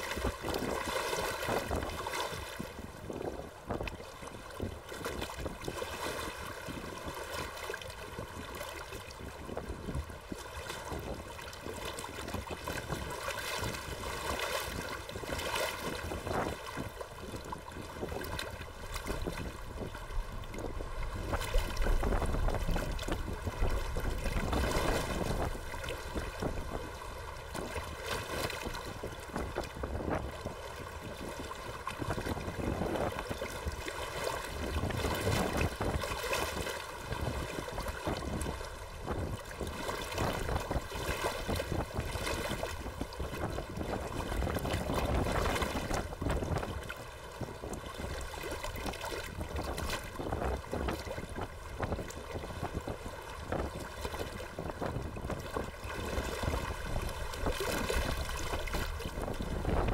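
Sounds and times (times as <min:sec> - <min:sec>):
choppy water slapping dock: 0:00.0 - 0:59.9
gusty wind buffeting microphone: 0:14.7 - 0:33.9, 0:34.5 - 0:48.2, 0:48.8 - 0:59.9.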